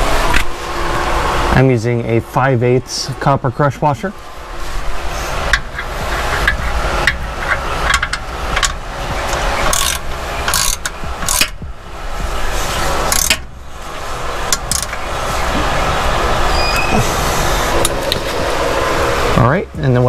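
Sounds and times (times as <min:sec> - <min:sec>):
steady background hum: 0:00.0 - 0:20.0
ratchet clicking: 0:05.5 - 0:11.6, 0:13.1 - 0:13.4, 0:14.5 - 0:15.1.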